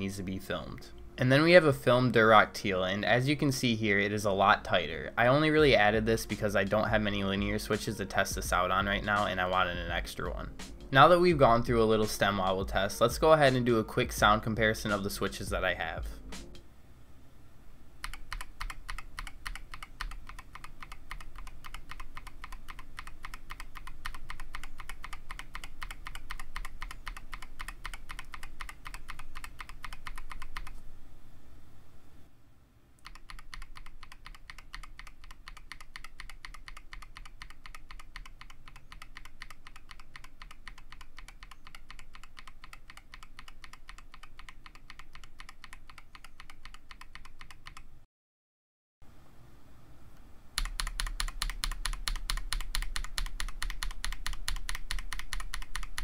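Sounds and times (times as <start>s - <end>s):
fast keyboard typing clacks: 18.0s - 30.7s, 33.1s - 47.9s, 50.6s - 56.0s.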